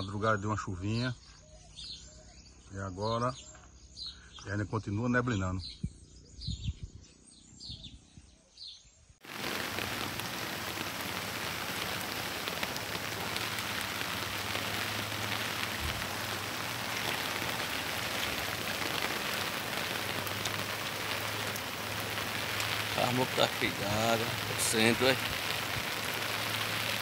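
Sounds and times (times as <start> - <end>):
faint bird chirps: 0.0 - 9.2
heavy rain on a flooded street: 9.2 - 27.0.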